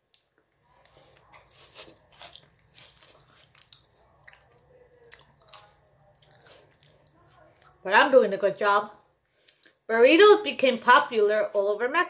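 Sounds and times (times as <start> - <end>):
person chewing: 0.0 - 7.8.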